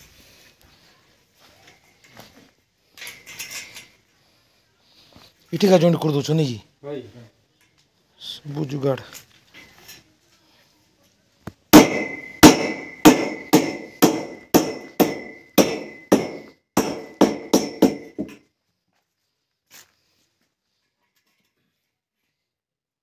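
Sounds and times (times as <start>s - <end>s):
hammer striking metal: 11.8s - 18.4s.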